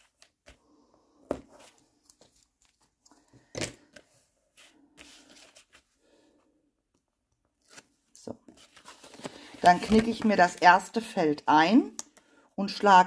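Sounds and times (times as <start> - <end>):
paper crackling and rustling: 7.6 - 10.9.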